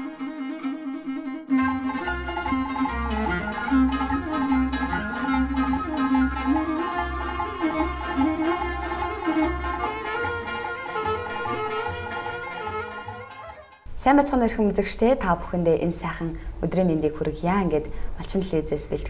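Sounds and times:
theme music with bowed strings: 0.0 - 13.9.

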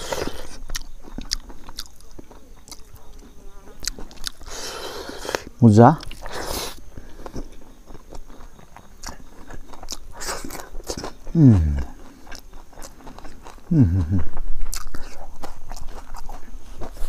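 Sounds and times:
person chewing crunchy food: 0.0 - 17.0
murmured vocal sounds: 11.3 - 12.1, 13.7 - 14.4.

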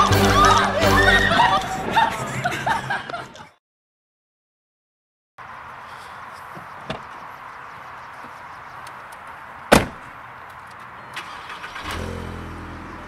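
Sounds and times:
car door slamming: 9.7 - 10.1
car engine starting and idling: 10.8 - 13.0.

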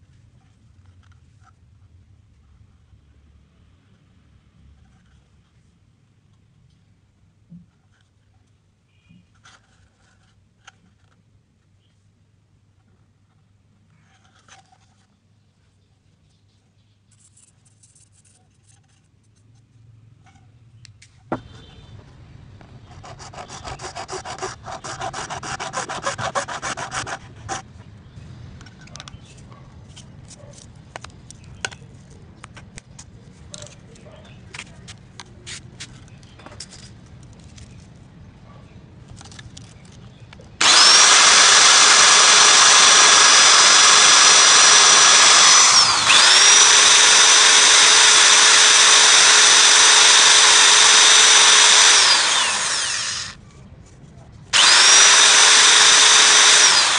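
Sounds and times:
file rasping against plastic pipe: 22.8 - 27.7
small handling clicks: 39.1 - 40.6
electric drill whining: 40.6 - 53.4, 54.6 - 56.9.

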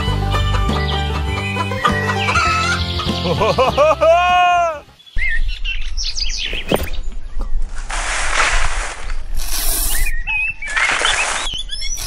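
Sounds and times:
chickens clucking: 0.0 - 3.7
background music: 0.0 - 5.0
chirping calls: 0.4 - 3.8, 9.8 - 12.0.

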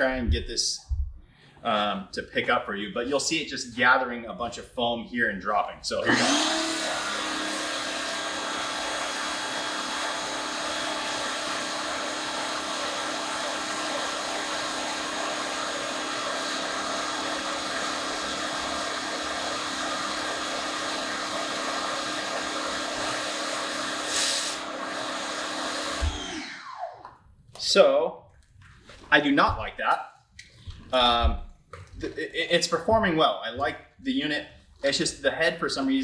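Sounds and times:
pressure washer motor hum: 6.1 - 27.1
foam spraying hiss: 24.0 - 24.6.

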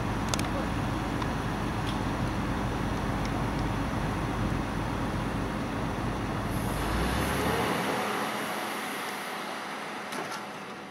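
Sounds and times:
diesel engine rumble: 0.0 - 10.9
site and traffic noise: 0.0 - 10.9.

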